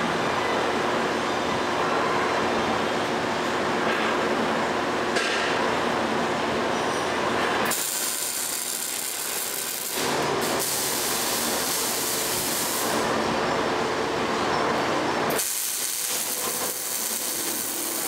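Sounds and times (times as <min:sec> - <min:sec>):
welding arc crackling and sizzling: 0:07.6 - 0:13.2, 0:15.3 - 0:18.0.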